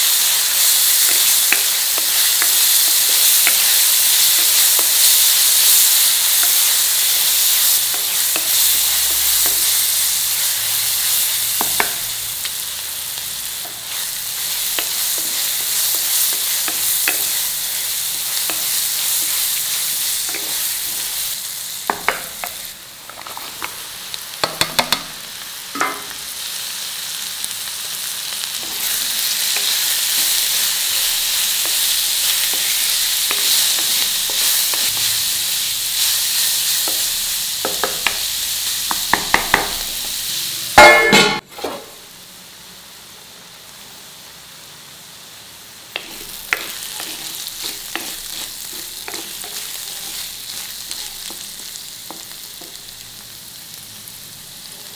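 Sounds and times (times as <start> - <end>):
vegetables sizzling in oil: 0.0 - 54.9
wooden spatula scraping a pan: 46.0 - 51.4.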